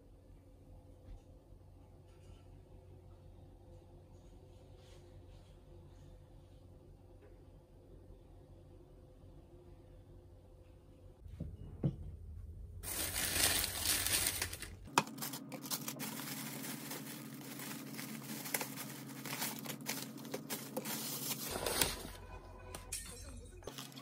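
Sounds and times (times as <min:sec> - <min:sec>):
paper bag crinkling: 0:12.8 - 0:22.2
plastic bags rustling: 0:12.8 - 0:22.9.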